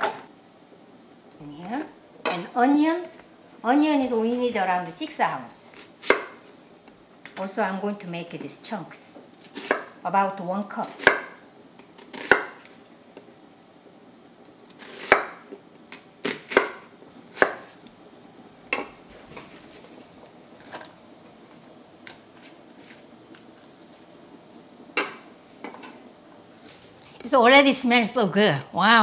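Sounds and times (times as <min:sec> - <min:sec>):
faint background noise: 0:00.0 - 0:29.0
knife chopping on wooden board: 0:06.0 - 0:06.4, 0:09.6 - 0:09.9, 0:10.9 - 0:11.4, 0:12.1 - 0:12.6, 0:14.8 - 0:15.4, 0:16.2 - 0:17.7.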